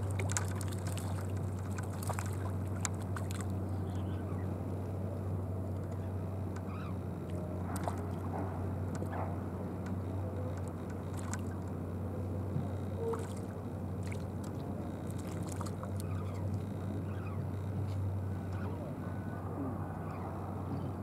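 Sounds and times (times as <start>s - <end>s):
low hum: 0.0s - 21.0s
light ticks and clicks: 5.7s - 8.0s, 9.8s - 11.7s.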